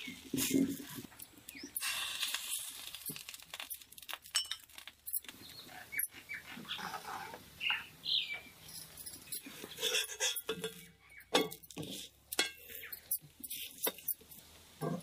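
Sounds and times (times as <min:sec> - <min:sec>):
wooden spatula scraping pan: 0:06.6 - 0:07.4.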